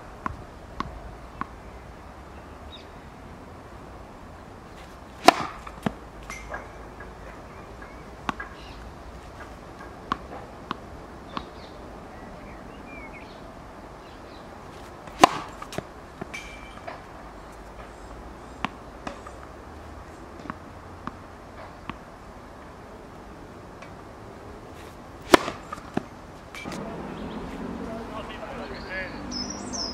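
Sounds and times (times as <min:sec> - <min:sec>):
tennis racket hitting ball: 0:04.7 - 0:11.5, 0:14.7 - 0:17.1, 0:24.8 - 0:27.8.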